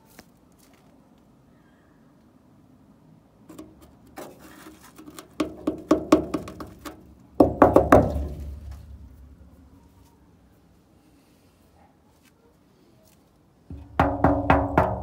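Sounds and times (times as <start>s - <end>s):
hand knocking on steel panel: 5.4s - 8.8s, 13.7s - 15.0s.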